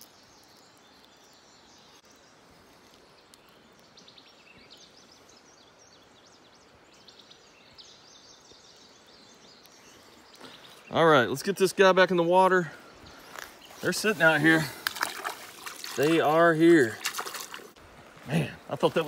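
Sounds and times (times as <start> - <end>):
small bird chirping: 0.0 - 11.5.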